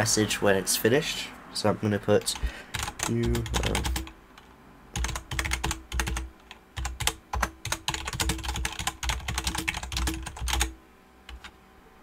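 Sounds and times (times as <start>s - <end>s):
typing on computer keyboard: 2.7s - 11.5s.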